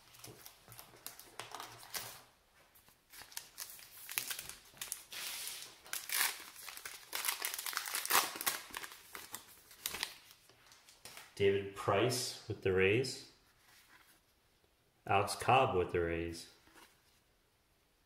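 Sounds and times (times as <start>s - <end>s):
plastic wrapper tearing and crinkling: 0.0s - 2.2s, 3.1s - 11.3s.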